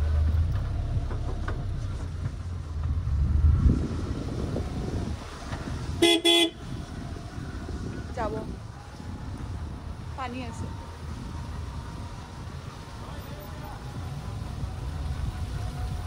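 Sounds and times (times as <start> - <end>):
low rumble: 0.0 - 16.0
car horn toots: 6.0 - 6.7.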